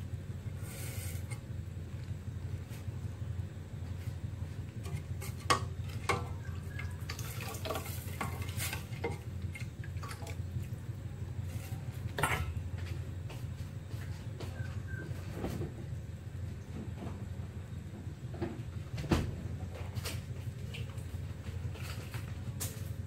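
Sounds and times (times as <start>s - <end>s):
steady low hum: 0.0s - 23.0s
metal utensil scraping steel pot: 0.6s - 1.5s, 4.8s - 9.8s, 11.4s - 12.6s.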